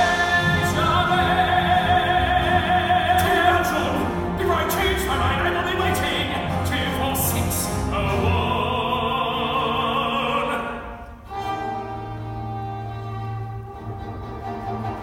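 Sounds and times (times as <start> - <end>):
man singing with vibrato: 0.0 - 11.3
theatre orchestra: 0.0 - 15.0.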